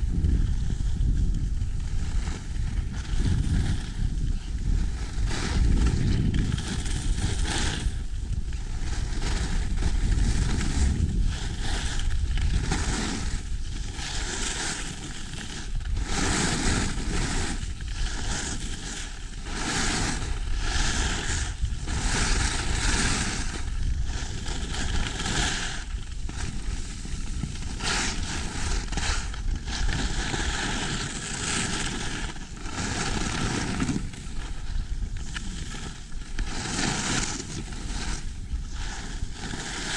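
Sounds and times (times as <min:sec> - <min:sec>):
skis scraping over snow: 0:00.0 - 0:39.9
wind rumbling on microphone: 0:00.0 - 0:39.9.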